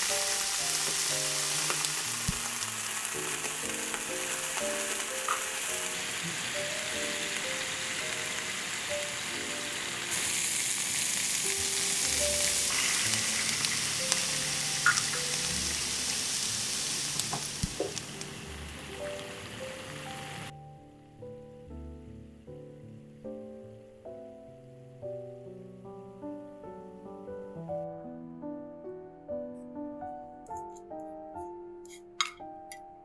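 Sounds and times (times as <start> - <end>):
shrimp sizzling in a frying pan: 0.0 - 20.5
water poured into hot pan: 0.0 - 20.5
soft background music: 0.0 - 33.0.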